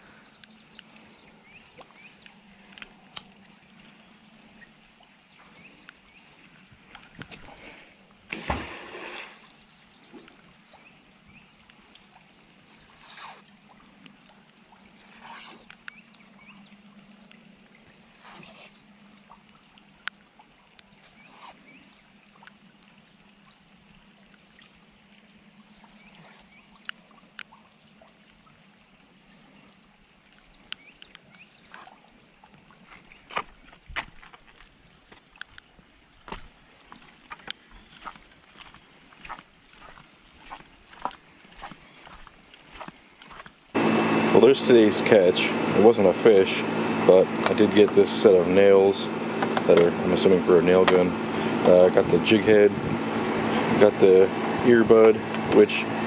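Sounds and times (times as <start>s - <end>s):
water dripping: 0.0s - 7.7s, 8.3s - 15.0s, 15.6s - 29.2s, 29.8s - 43.8s
rope pulled through water: 0.0s - 56.0s
magnet splashing into water: 8.3s - 9.5s.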